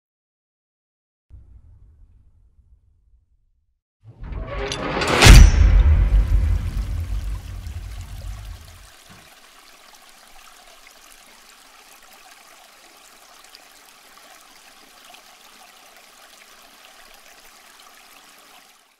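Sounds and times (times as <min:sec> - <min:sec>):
deep low sound: 0:04.2 - 0:08.7.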